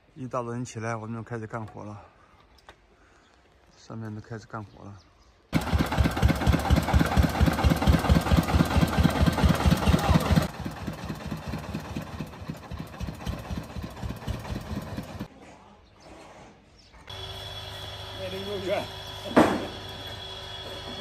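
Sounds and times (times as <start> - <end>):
diesel engine knocking: 5.6 - 15.3.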